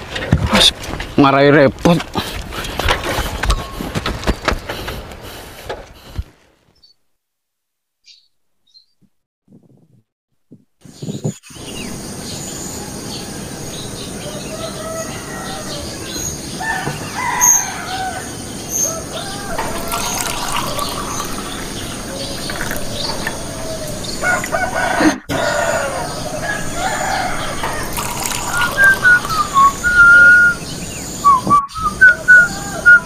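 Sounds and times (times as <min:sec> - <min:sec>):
small birds chirping: 0:08.0 - 0:09.1, 0:10.8 - 0:33.0
rooster crowing: 0:14.2 - 0:21.2, 0:22.9 - 0:30.7, 0:32.1 - 0:33.0.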